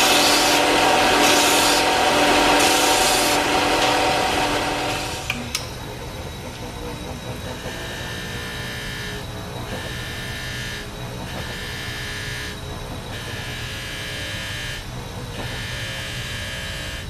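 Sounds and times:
bench grinder motor humming: 0.0 - 5.4
metal grinding on wheel: 0.0 - 5.4.

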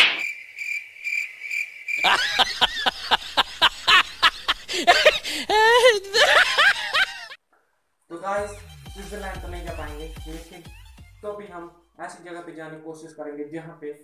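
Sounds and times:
crickets chirping: 0.0 - 7.1
burst of laughter: 2.0 - 7.4.

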